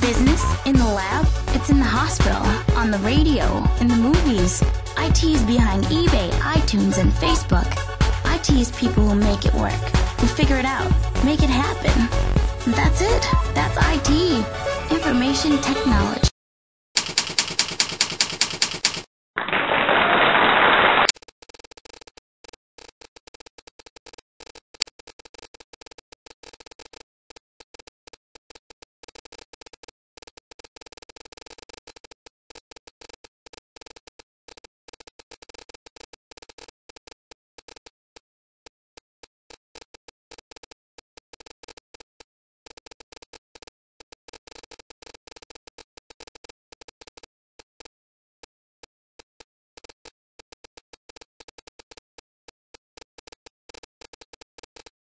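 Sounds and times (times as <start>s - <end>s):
typewriter key clicks: 17.0s - 19.0s.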